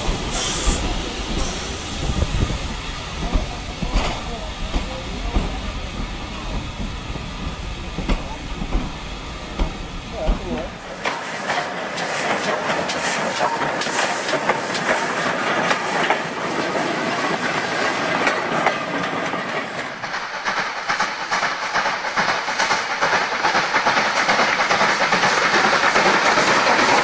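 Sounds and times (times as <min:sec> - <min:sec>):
model train wheels clattering: 0:09.6 - 0:17.4, 0:18.2 - 0:27.0.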